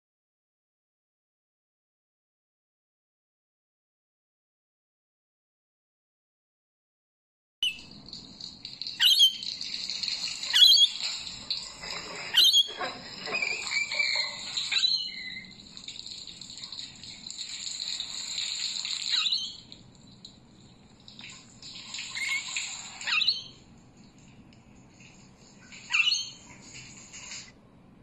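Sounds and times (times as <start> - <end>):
lorikeet chattering: 9.0 - 9.5, 12.3 - 15.5, 25.9 - 26.4
lorikeet screeches: 12.3 - 15.5, 22.2 - 23.5, 25.9 - 26.4.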